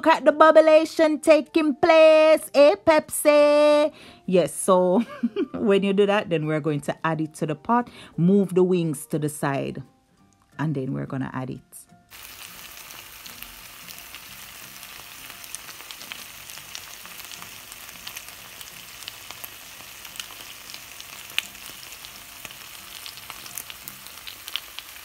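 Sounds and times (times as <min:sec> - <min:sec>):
chicken frying in oil: 0:12.1 - 0:25.0.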